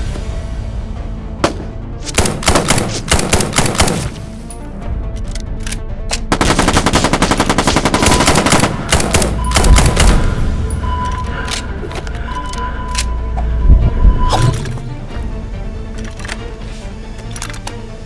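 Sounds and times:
background music: 0.0 - 18.0
automatic gunfire: 2.2 - 4.1, 6.3 - 10.4.

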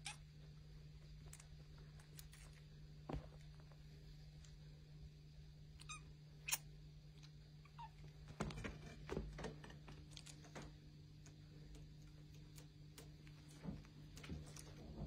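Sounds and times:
low room hum: 0.0 - 15.0
kittens rustling and scratching: 1.0 - 4.6, 8.0 - 15.0.

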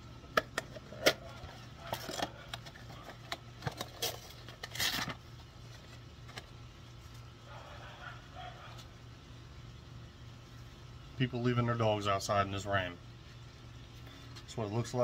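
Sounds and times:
low steady hum: 0.0 - 15.0
packaging rustling: 1.3 - 6.5.

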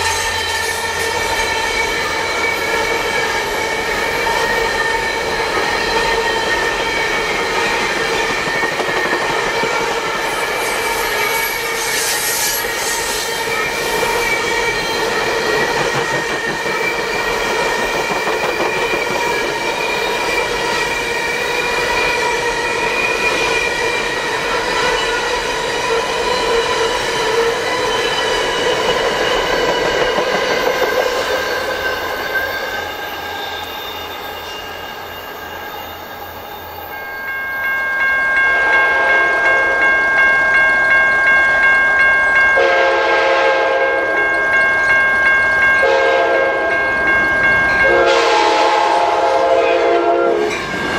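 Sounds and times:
train wheels squealing: 0.0 - 38.5
train rolling past: 0.0 - 50.9.

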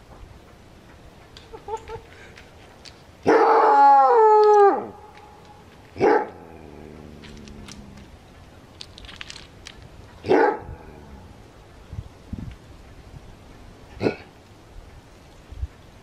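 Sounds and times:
coyote bark-howl: 3.2 - 5.0, 6.0 - 6.9.

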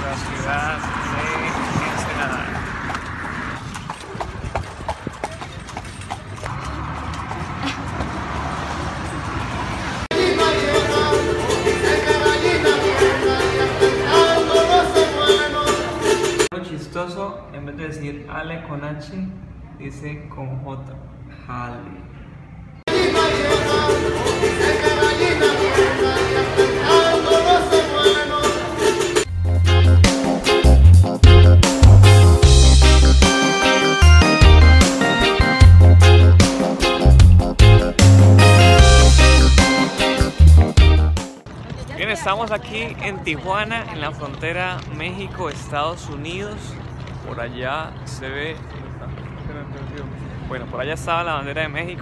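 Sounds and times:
horse hooves clip-clopping on pavement: 0.0 - 9.8, 40.5 - 50.1
man singing: 10.1 - 16.3, 22.9 - 29.2
acoustic guitar strumming: 10.1 - 16.5, 22.9 - 41.2
music with heavy bass beat: 29.3 - 41.4.

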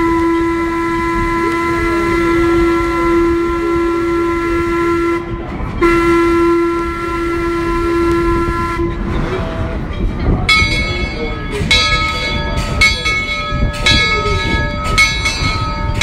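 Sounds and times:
steam whistle blowing: 0.0 - 9.0.

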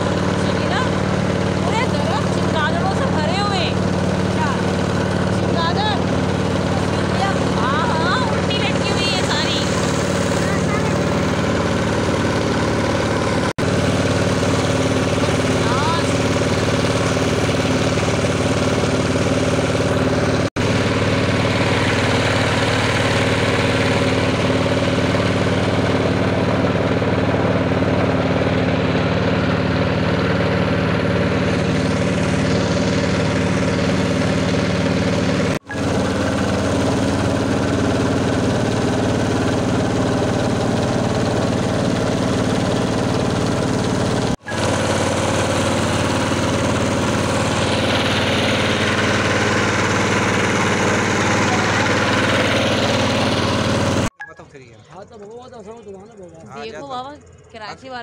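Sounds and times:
motorboat engine running: 0.0 - 58.0.

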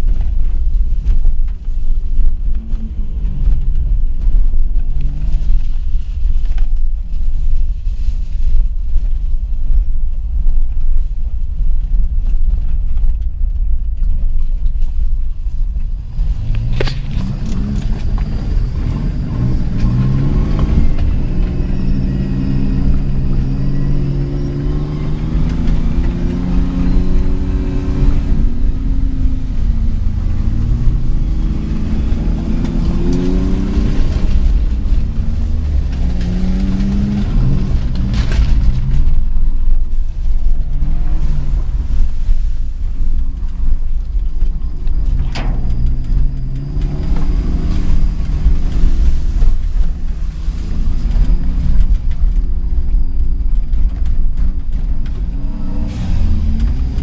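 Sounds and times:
road and wind noise: 0.0 - 57.0
car engine revving: 15.7 - 57.0.

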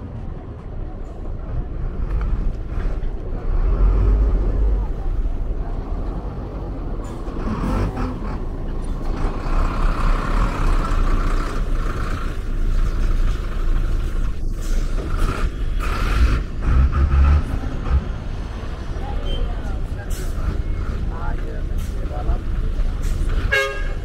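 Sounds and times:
low traffic rumble: 0.0 - 24.0
vehicles passing: 0.0 - 24.0.

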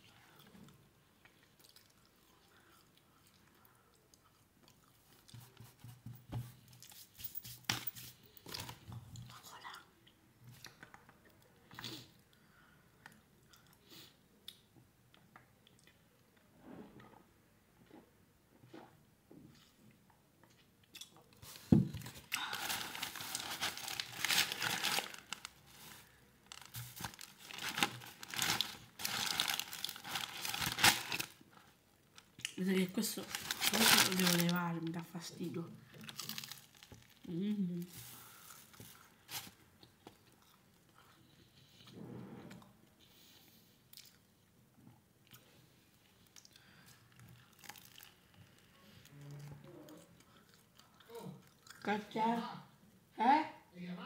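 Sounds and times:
person chewing food: 0.1 - 5.7, 38.7 - 41.9, 43.8 - 51.8
thump: 21.7 - 22.0
paper wrapper crinkling: 22.0 - 31.7, 32.7 - 35.2, 35.9 - 37.3, 47.5 - 48.5.

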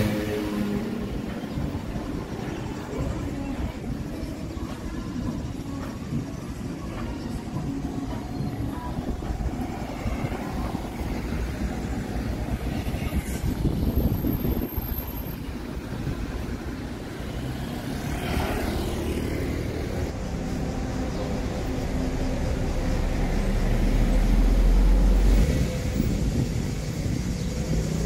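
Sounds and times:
low rumble of traffic: 0.0 - 28.0
vehicle passing close by: 17.3 - 28.0.

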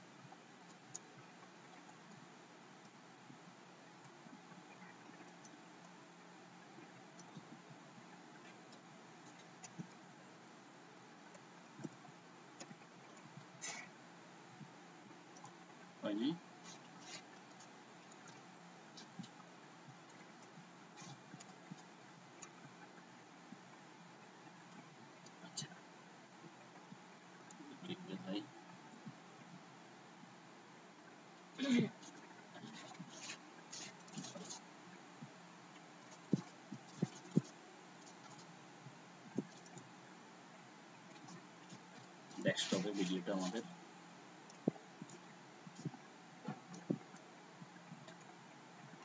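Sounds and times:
faint steady hiss: 0.0 - 49.0
soft low thumps: 44.6 - 48.1.

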